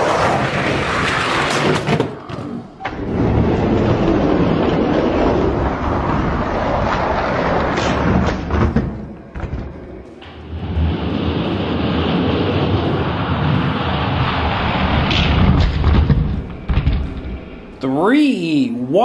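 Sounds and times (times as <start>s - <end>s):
toy trucks rolling on plastic track: 0.0s - 2.2s, 2.9s - 8.4s.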